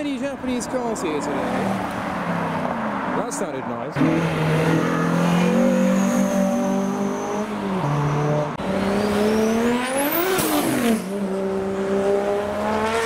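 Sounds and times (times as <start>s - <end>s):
car engine revving: 4.0s - 13.0s.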